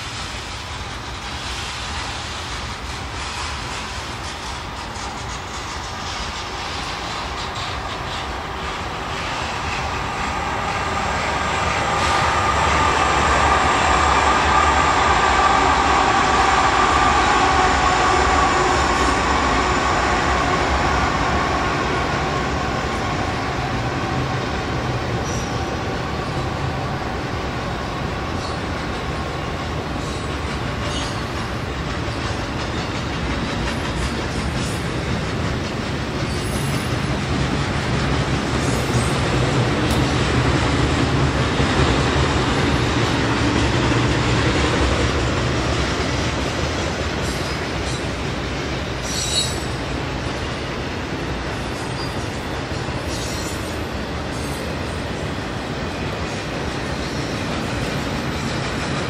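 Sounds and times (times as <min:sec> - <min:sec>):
train wheels rumbling and clattering: 0:00.0 - 0:59.0
high wheel squeal: 0:25.2 - 0:26.5, 0:29.4 - 0:31.6, 0:36.2 - 0:37.0, 0:49.0 - 0:49.9, 0:51.8 - 0:52.4, 0:53.0 - 0:54.8.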